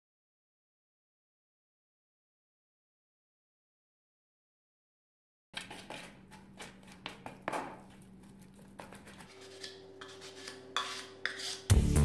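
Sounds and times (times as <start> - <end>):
tool scraping plastic bowl: 5.6 - 11.8.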